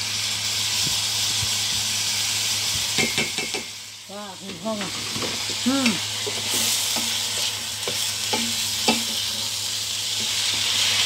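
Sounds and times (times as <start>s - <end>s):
food sizzling in a wok: 0.0s - 11.0s
utensil knocking against pan: 3.0s - 3.7s, 7.8s - 9.1s.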